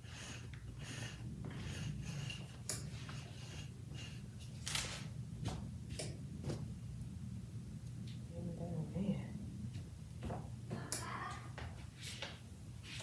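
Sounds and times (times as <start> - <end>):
lint roller rubbing on fleece: 0.0 - 5.0
low steady hum: 0.0 - 13.0.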